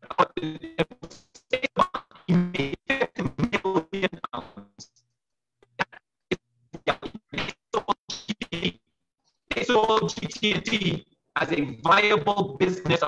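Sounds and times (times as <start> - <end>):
choppy speech over video call: 0.0 - 13.0.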